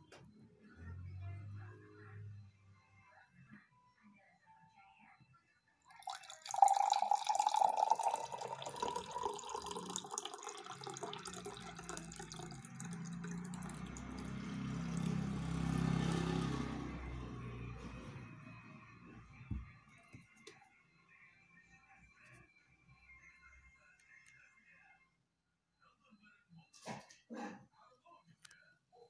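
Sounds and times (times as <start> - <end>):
water pouring into glass: 5.9 - 16.3.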